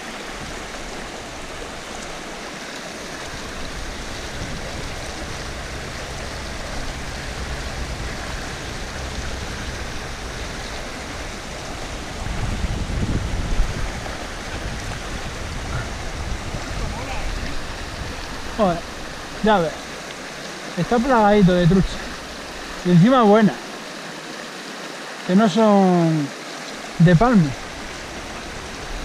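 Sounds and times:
river current rushing: 0.0 - 29.0
low rumble: 3.4 - 19.4.

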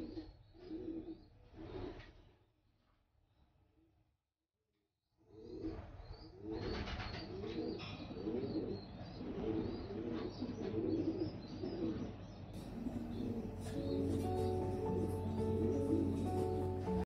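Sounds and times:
pigeons cooing: 0.0 - 2.1, 6.4 - 17.0
high chirps: 12.6 - 17.0.

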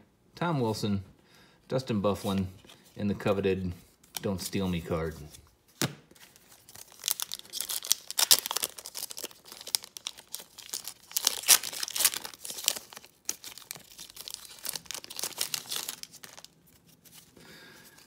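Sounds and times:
plastic wrapper tearing and crinkling: 6.2 - 17.3.

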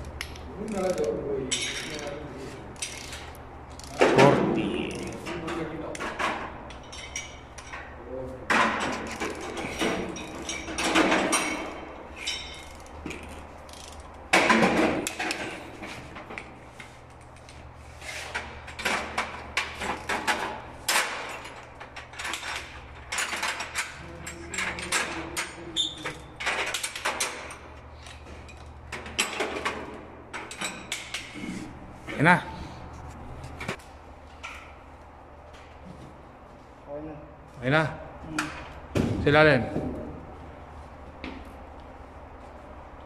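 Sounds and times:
torque wrench ratcheting clicks: 0.2 - 2.1, 12.6 - 14.2.

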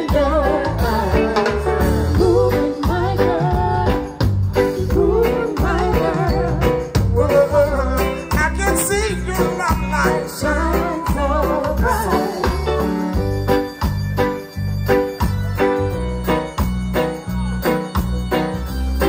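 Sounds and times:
man singing: 0.0 - 13.1
reggae band playing: 0.0 - 19.0.

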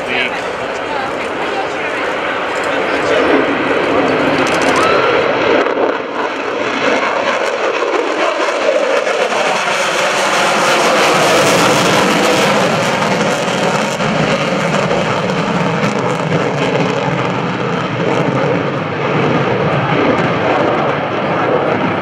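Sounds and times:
jet engine roar: 0.0 - 22.0.

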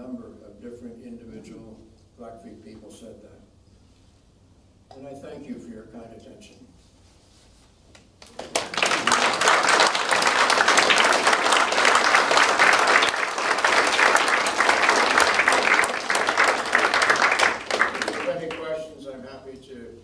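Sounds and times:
audience applauding: 8.2 - 18.8.

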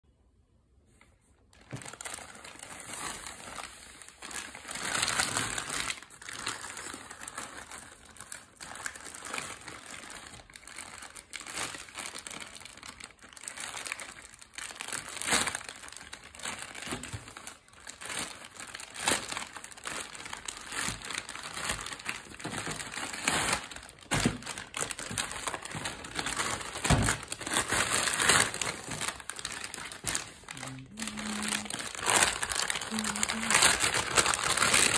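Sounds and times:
plastic wrapping crinkling: 1.4 - 34.9.

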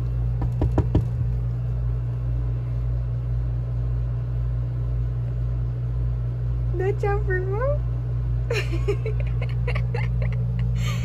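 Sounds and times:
air conditioner hum: 0.0 - 11.0
hand tapping on window glass: 0.4 - 1.2.

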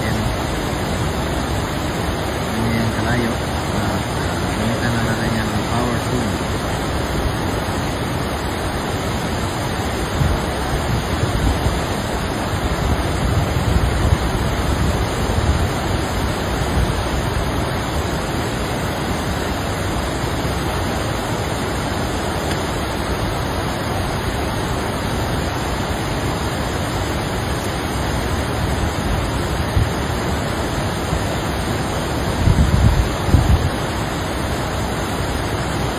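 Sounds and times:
wind buffeting microphone: 0.0 - 18.4, 28.2 - 33.9
river rushing over stones: 0.0 - 35.9.

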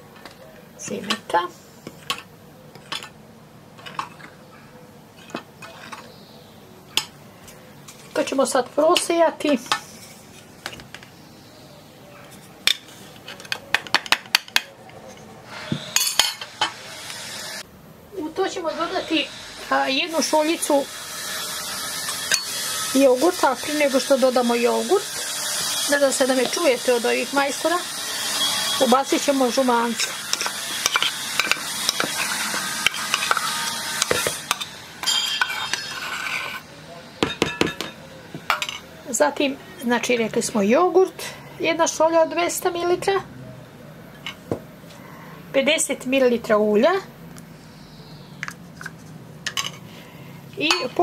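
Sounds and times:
hissing machine noise: 15.4 - 39.7
machine whine: 18.6 - 36.0.

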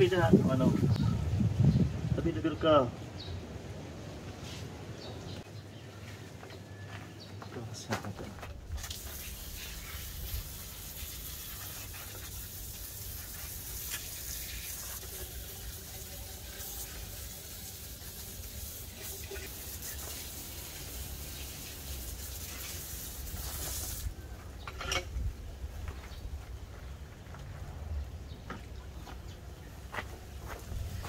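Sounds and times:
steady hiss: 8.6 - 24.4.

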